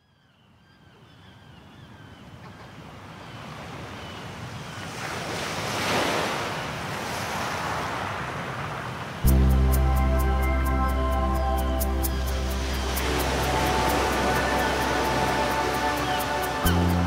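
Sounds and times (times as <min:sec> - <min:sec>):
waves washing: 0:03.4 - 0:17.0.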